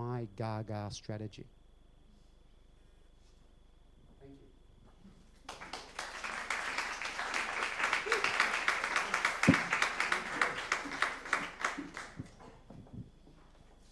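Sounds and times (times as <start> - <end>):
audience applauding: 5.4 - 12.5.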